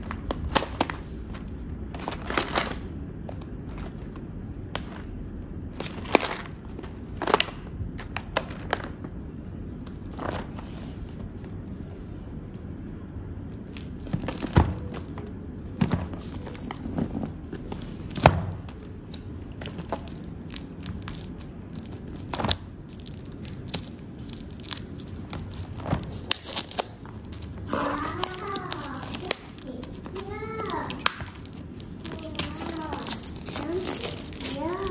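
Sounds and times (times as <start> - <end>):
plastic shrink wrap crinkling: 0.0 - 9.0, 13.4 - 34.9
person speaking: 27.6 - 34.9.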